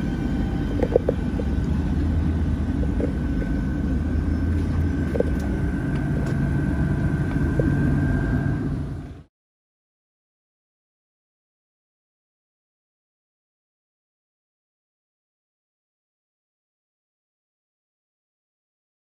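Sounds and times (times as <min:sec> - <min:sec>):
high whine: 0:00.0 - 0:09.3
idling electric train rumble: 0:00.0 - 0:09.3.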